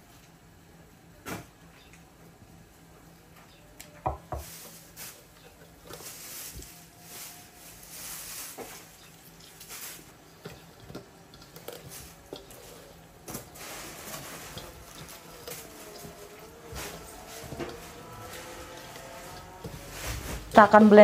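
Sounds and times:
dishes and utensils clinking: 8.6s - 20.7s
water running and splashing: 9.4s - 21.0s.

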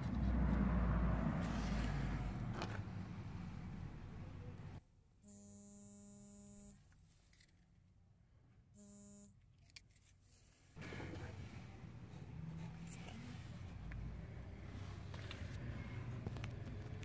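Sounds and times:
faint electrical buzz: 5.2s - 7.0s, 8.7s - 9.6s.

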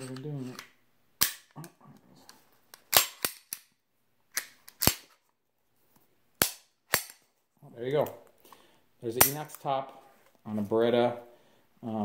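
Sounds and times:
pistol slide clacking: 4.3s - 5.2s, 6.4s - 7.2s.

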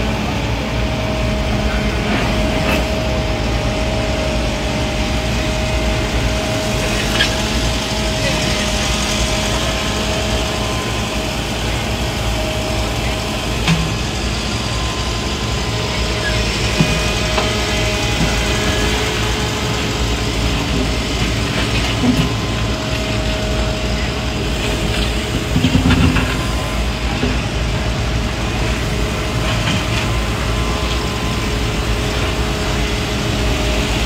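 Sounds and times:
diesel engine running under load: 0.0s - 34.0s.

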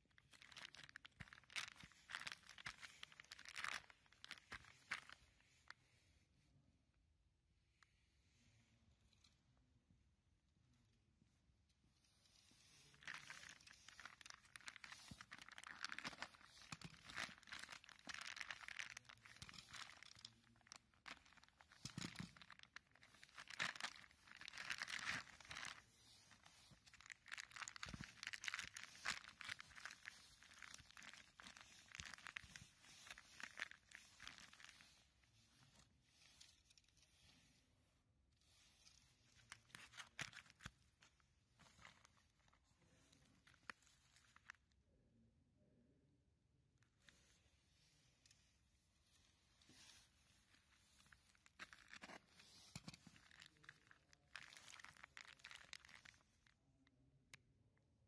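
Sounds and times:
plastic bags crinkling: 0.0s - 5.3s, 12.8s - 37.0s, 38.8s - 42.5s, 43.1s - 44.6s, 49.7s - 56.4s.

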